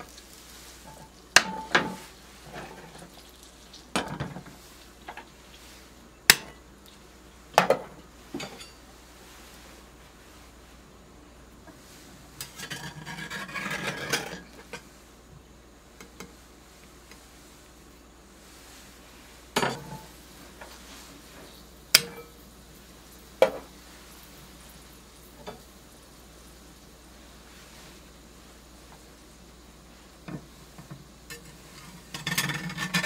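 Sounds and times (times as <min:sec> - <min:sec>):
cast-iron cookware clanking: 0:00.8 - 0:03.0, 0:03.9 - 0:04.5, 0:07.5 - 0:08.9, 0:12.4 - 0:14.9, 0:19.6 - 0:20.2, 0:21.9 - 0:22.4, 0:30.3 - 0:33.0
metal spatula scraping skillet: 0:11.8 - 0:14.9, 0:31.3 - 0:33.0.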